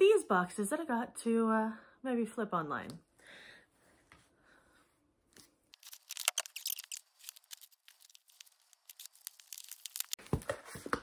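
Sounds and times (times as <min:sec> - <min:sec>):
scissors cutting packing tape: 0:05.8 - 0:10.2.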